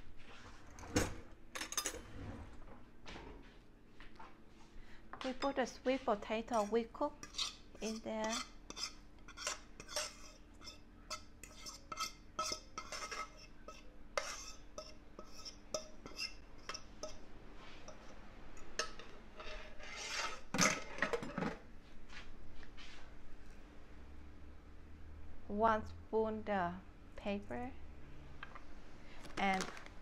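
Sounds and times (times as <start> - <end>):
metal utensils scraping a bowl: 5.4 - 17.2, 17.8 - 21.6.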